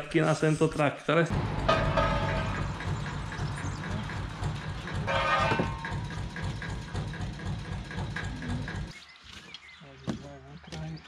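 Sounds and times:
metal wheel rim clanging: 1.3s - 8.9s
engine idling: 1.3s - 9.4s.

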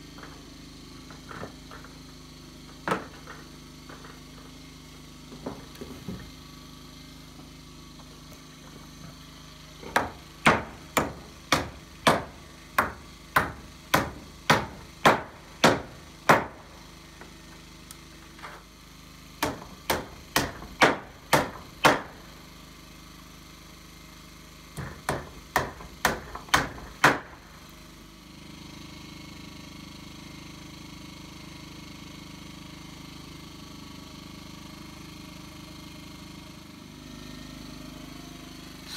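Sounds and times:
hammer driving nails into wood: 9.8s - 16.7s, 19.4s - 22.2s, 24.7s - 27.4s.

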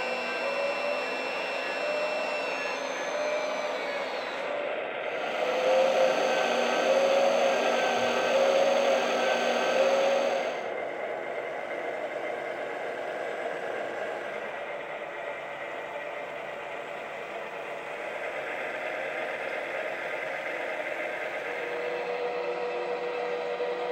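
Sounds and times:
hydraulic pump whirring: 0.0s - 15.9s.

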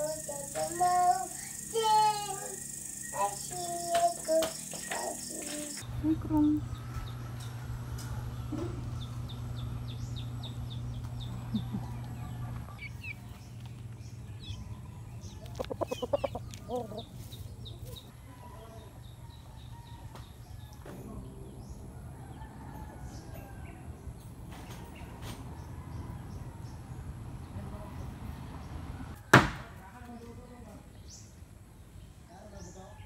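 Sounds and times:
faint high bird chirps: 0.0s - 5.8s
rooster clucking: 15.4s - 17.2s.

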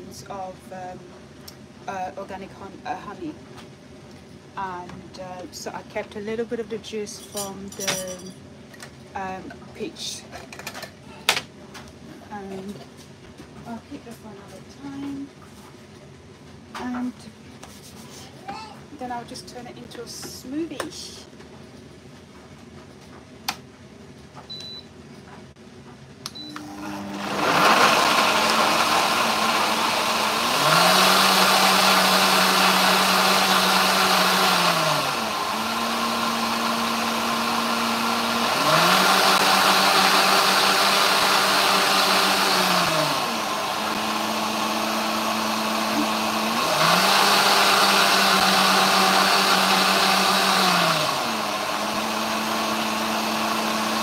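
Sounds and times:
blender running: 26.5s - 54.0s.

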